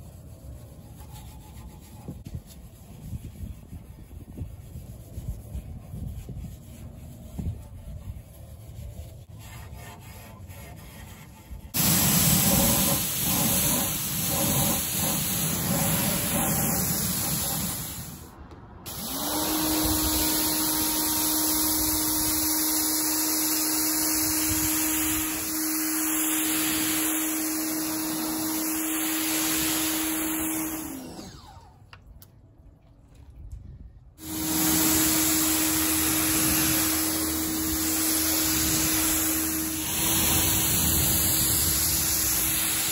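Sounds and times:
pressure washer spraying water: 11.8 - 18.3, 18.9 - 31.4, 34.2 - 42.9.

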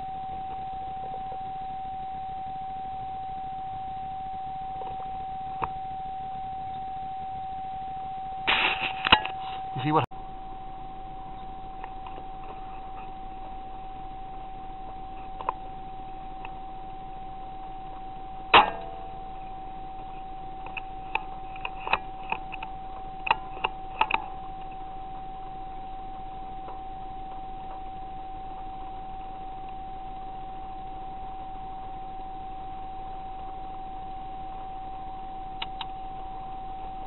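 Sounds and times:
high electronic whine: 0.0 - 37.0
sharp click with short ring: 18.6 - 19.1.

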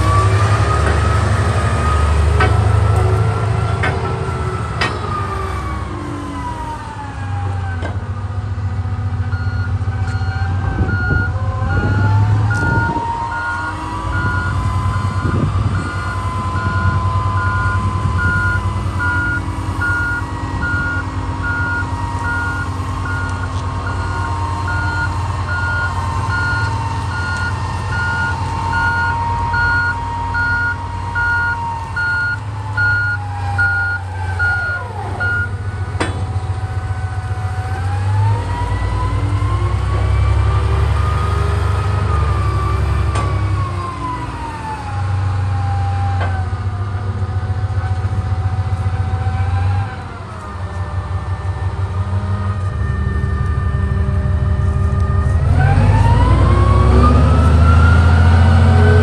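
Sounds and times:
diesel truck engine running: 0.0 - 59.0
drivetrain whine: 0.0 - 59.0
reversing alarm beeps: 9.3 - 35.6.

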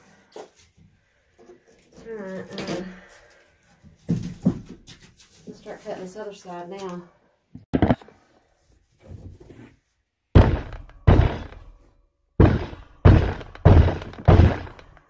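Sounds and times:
heavy thumps on wooden floor: 10.4 - 11.8, 12.4 - 15.0.

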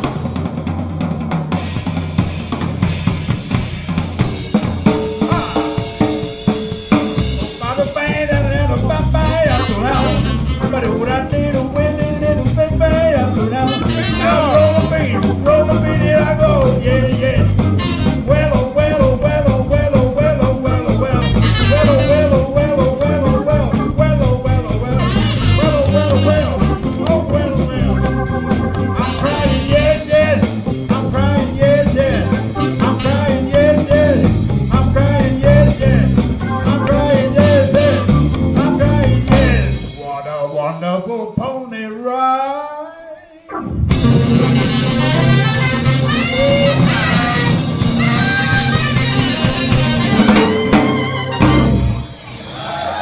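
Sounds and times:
blues-rock band playing: 0.0 - 40.1, 43.5 - 53.0
wavering lead line: 8.4 - 39.6, 43.5 - 52.2.

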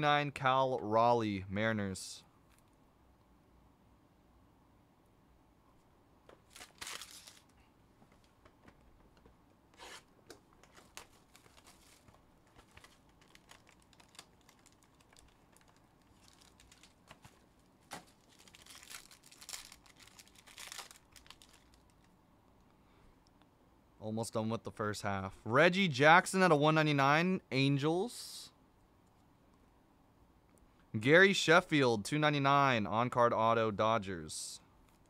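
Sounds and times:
cards clicking and rustling: 6.3 - 7.6, 9.8 - 22.1
plastic wrapping tearing and crinkling: 6.4 - 7.6, 9.8 - 22.1.

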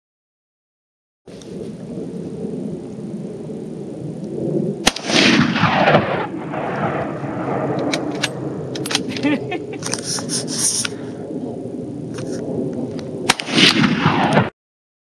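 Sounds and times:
rifle shot with rolling echo: 3.4 - 9.2, 11.8 - 14.5.

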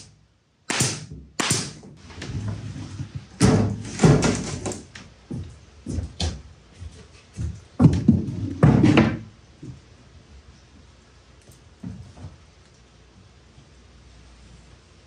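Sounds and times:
plywood panels being handled: 2.0 - 10.0.

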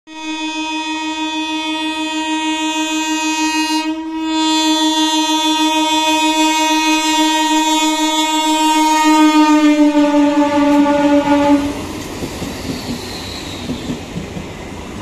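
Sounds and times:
train horn blast: 0.1 - 11.9.

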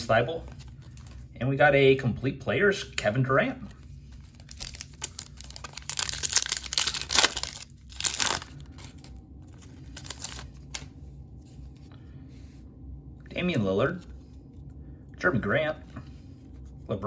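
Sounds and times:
foil wrapper crinkling: 4.1 - 10.9
foil wrapper ripping: 4.2 - 10.8.

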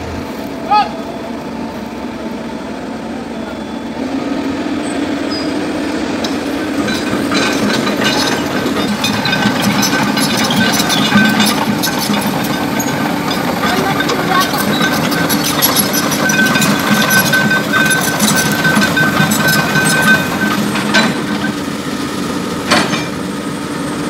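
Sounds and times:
diesel engines droning: 0.0 - 24.0
metallic clinks and clanks: 6.2 - 21.6.

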